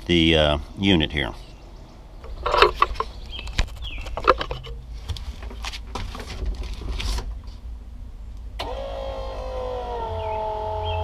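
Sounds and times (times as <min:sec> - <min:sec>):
low background rumble: 0:00.0 - 0:08.6
handling clicks and rustles: 0:02.2 - 0:07.7
electric pump motor humming: 0:08.6 - 0:11.0.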